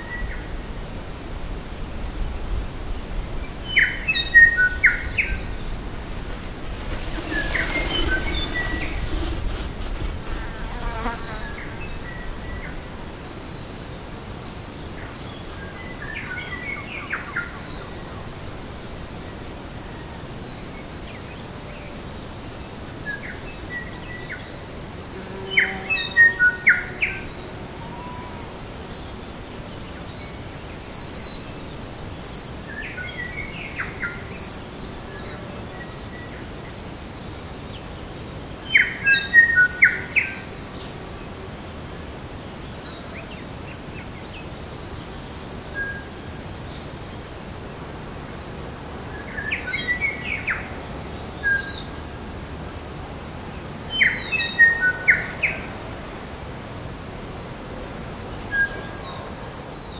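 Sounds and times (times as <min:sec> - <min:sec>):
steady background hiss: 0:00.0 - 0:59.9
songbirds singing: 0:53.3 - 0:57.6.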